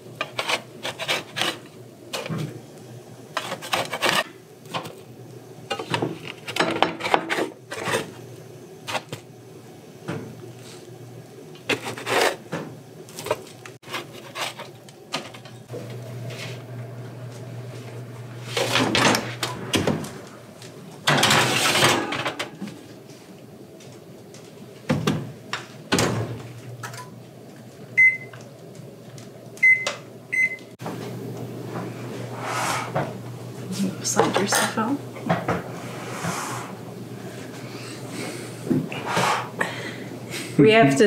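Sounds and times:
metal spatula scraping sheet pan: 0:00.2 - 0:01.6, 0:03.4 - 0:04.3
baking sheet sliding into oven: 0:18.4 - 0:20.2, 0:21.1 - 0:22.4, 0:32.2 - 0:33.1, 0:35.5 - 0:36.8
short oven beeps: 0:28.0 - 0:28.4, 0:29.6 - 0:30.7.

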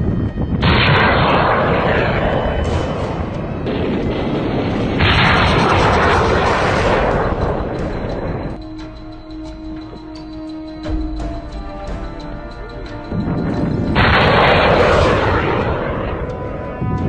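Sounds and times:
rockets launching with rushing noise: 0:00.6 - 0:08.4.

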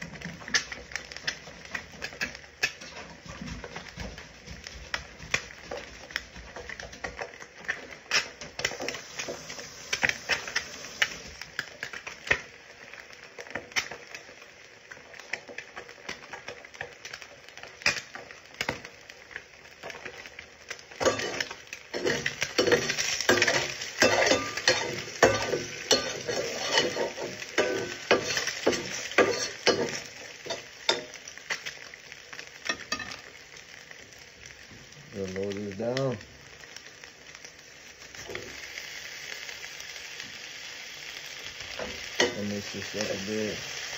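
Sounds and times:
eggs sizzling in a pan: 0:00.0 - 0:43.9
utensil scraping a pan: 0:21.0 - 0:31.0.

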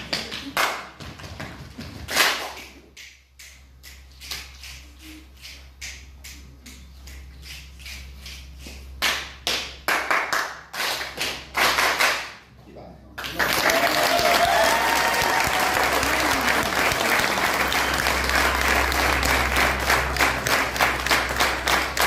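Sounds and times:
children clapping: 0:00.0 - 0:03.0, 0:09.0 - 0:12.4, 0:13.2 - 0:22.0.

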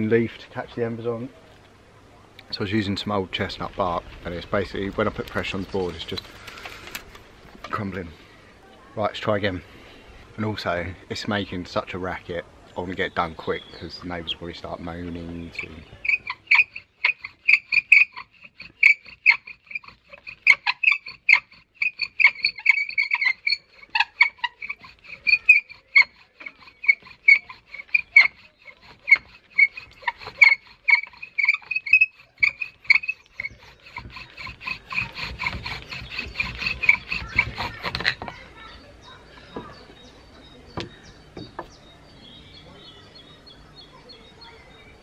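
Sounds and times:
rough grinding noise: 0:02.4 - 0:08.4, 0:09.1 - 0:40.0
bow drill squeaking: 0:14.6 - 0:38.8.

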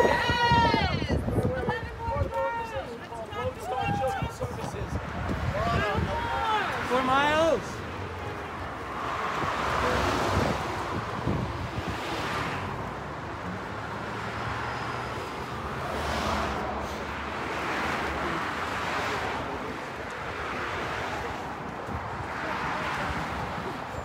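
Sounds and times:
wind on microphone: 0:00.0 - 0:02.3, 0:04.6 - 0:06.4, 0:09.3 - 0:12.9
cars passing: 0:00.0 - 0:24.0.

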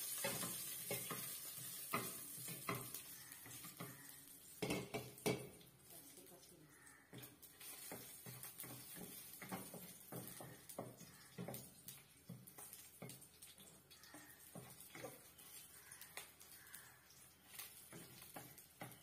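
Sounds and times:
wooden spatula scraping a wok: 0:07.2 - 0:11.6.

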